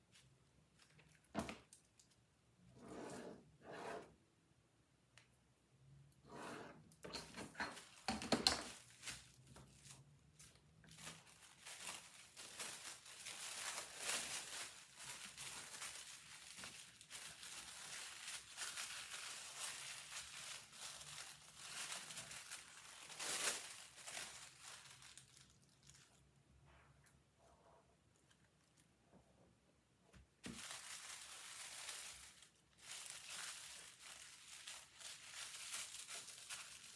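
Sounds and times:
tissue paper rustling and crinkling: 7.7 - 8.1, 8.7 - 26.3, 30.4 - 36.9.

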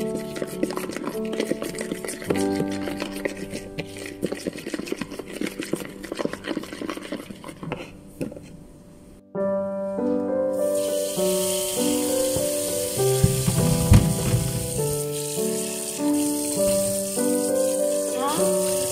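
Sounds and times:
utensil scraping against bowl: 0.0 - 8.5
background piano music: 0.0 - 18.9.

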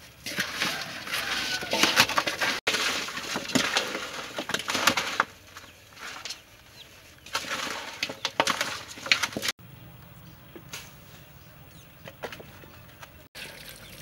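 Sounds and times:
chicken feet clattering in metal basin: 0.1 - 6.5, 7.2 - 9.5.

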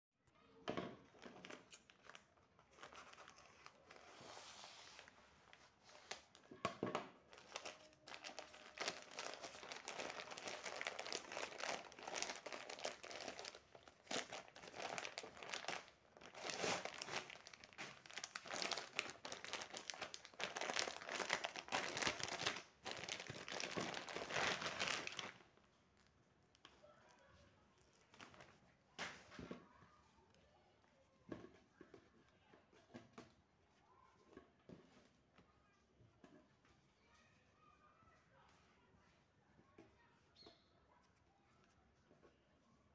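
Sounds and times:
plastic wrapping crinkling: 1.1 - 6.5, 7.2 - 26.7.

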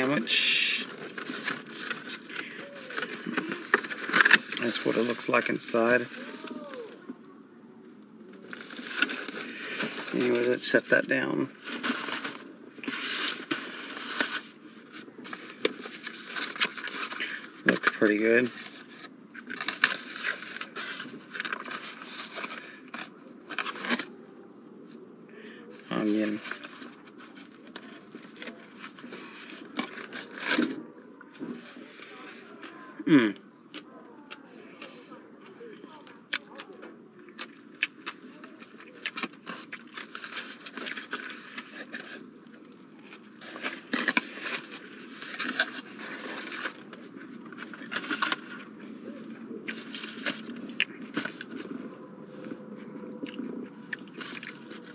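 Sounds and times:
cardboard and paper crackling: 0.0 - 7.3, 7.9 - 25.0, 25.6 - 54.9
person chewing: 36.3 - 41.8, 53.2 - 54.9.

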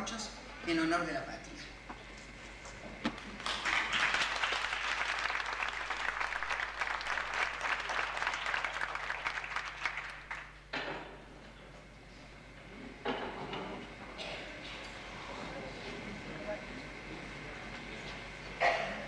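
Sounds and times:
audience applauding: 3.2 - 10.6.

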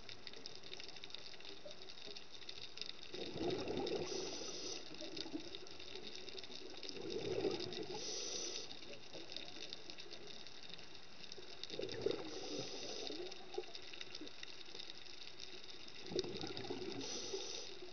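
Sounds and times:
faint crackling: 0.0 - 17.9
gush of exhaled bubbles: 3.1 - 5.5, 6.6 - 8.7, 11.7 - 13.7, 16.0 - 17.9
diver breathing through regulator: 3.9 - 5.0, 7.8 - 8.8, 12.1 - 13.4, 16.7 - 17.9.

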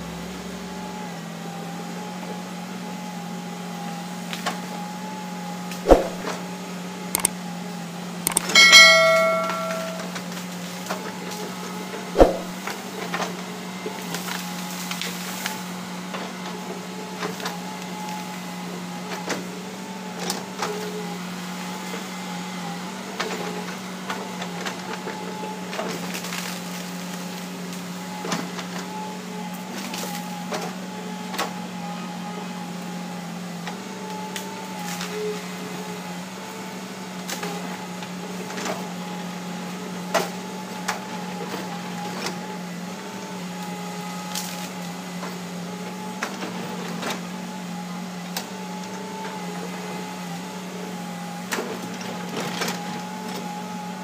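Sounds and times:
loud ringing metal clank: 8.3 - 10.2, 12.2 - 12.5.

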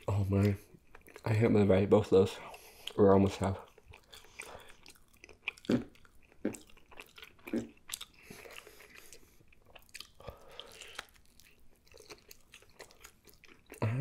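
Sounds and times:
person biting and chewing: 3.7 - 13.8.

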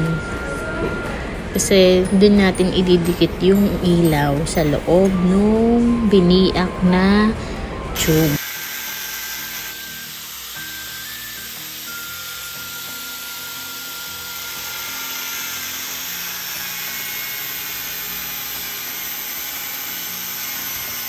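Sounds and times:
angle grinder cutting pipe: 8.0 - 21.0.

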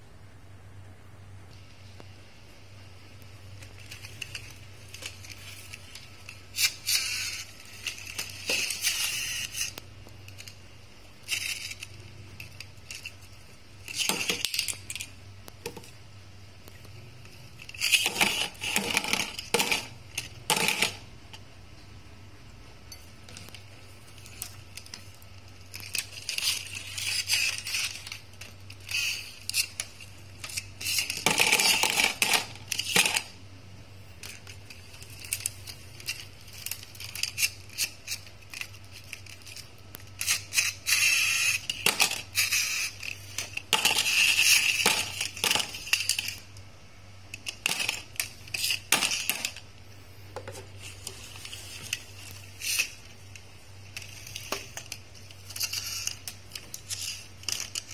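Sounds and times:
toy cars clattering on tabletop: 17.7 - 21.0, 28.9 - 33.3, 40.2 - 46.4, 47.4 - 49.6.

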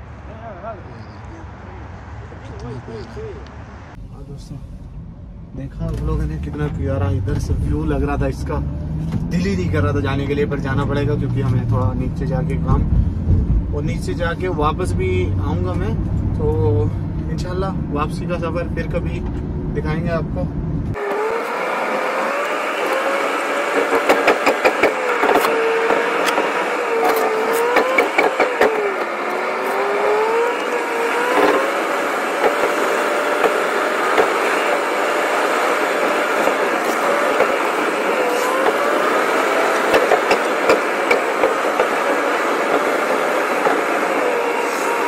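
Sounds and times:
car engine and road noise: 0.0 - 45.0.

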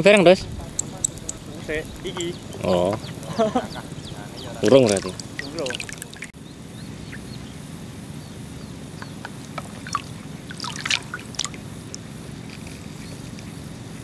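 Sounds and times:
low background rumble: 0.0 - 14.0
water sloshing and lapping: 3.9 - 6.3, 9.6 - 12.0
small splashes and clicks: 4.6 - 6.3, 9.6 - 13.5.

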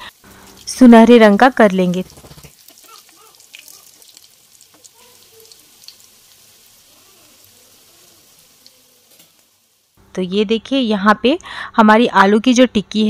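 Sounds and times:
patties sizzling in oil: 0.0 - 10.1.

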